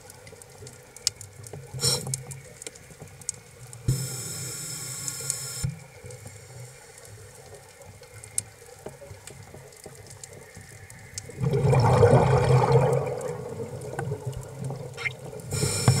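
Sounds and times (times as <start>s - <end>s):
regulator inhalation hiss: 1.8s - 2.3s, 3.9s - 5.8s, 15.5s - 16.0s
exhaled bubbles gurgling underwater: 9.1s - 16.0s.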